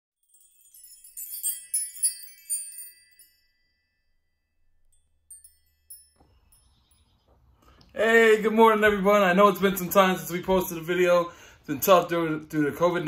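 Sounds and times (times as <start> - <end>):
tinkling chime sound effect: 0.2 - 7.3.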